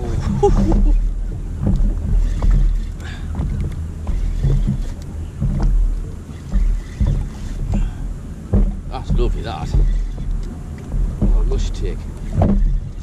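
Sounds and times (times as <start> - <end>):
knocks and crackles: 0.0 - 13.0
rumbling pulsing microphone noise: 0.0 - 13.0.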